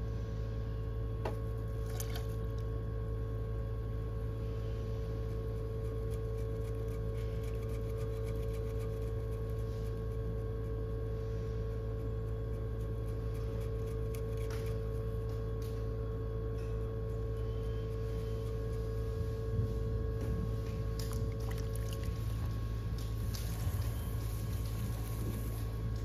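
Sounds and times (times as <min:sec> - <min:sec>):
potter's wheel motor hum: 0:00.0 - 0:26.0
wet splashing of water and clay: 0:21.0 - 0:22.4.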